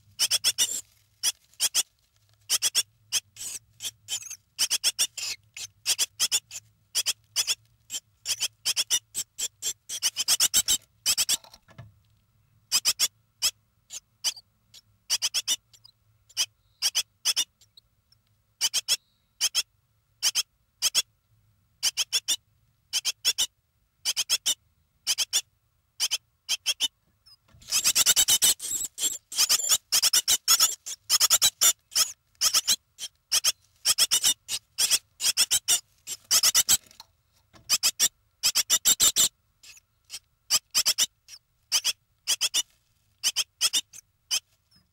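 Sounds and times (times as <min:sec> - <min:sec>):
nestling birds cheeping: 0:27.3 - 0:36.6.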